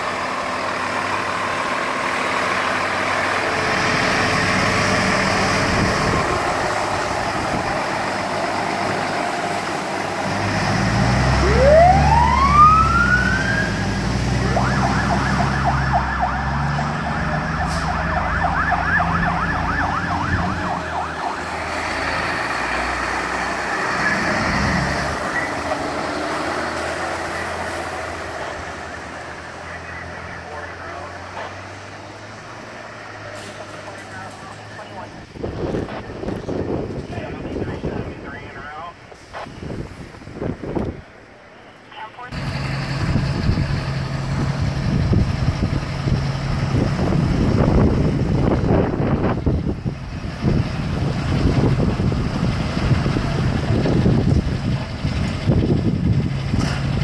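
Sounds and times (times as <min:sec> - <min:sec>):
fire engine rumbling: 0:00.0 - 0:57.0
wind buffeting microphone: 0:05.3 - 0:08.3, 0:35.2 - 0:38.6, 0:39.5 - 0:41.1, 0:43.0 - 0:57.0
siren yelp: 0:11.4 - 0:21.7.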